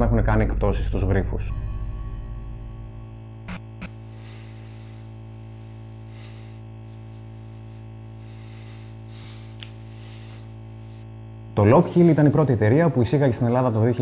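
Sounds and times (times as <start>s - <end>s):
low synthesizer drone: 0.0s - 14.0s.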